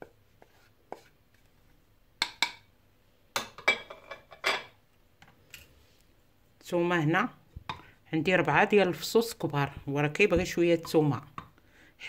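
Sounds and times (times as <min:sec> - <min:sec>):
spoon knocking on pot: 0:02.2 - 0:02.7.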